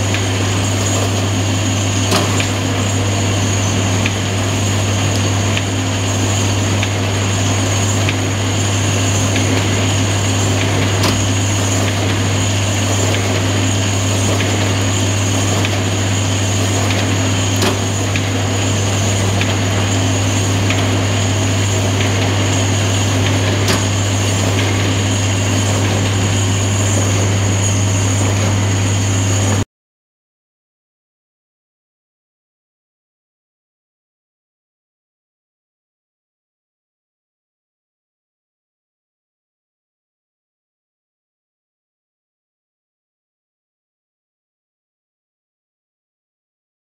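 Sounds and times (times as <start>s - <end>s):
low motor hum: 0.0s - 29.6s
mechanical whir: 0.0s - 29.6s.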